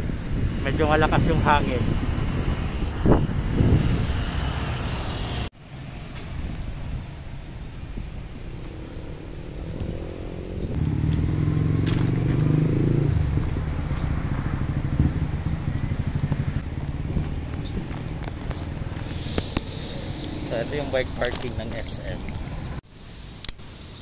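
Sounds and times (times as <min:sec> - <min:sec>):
wind noise: 0:00.0 - 0:22.8
road noise: 0:00.0 - 0:24.0
vehicle engine running: 0:08.6 - 0:22.8.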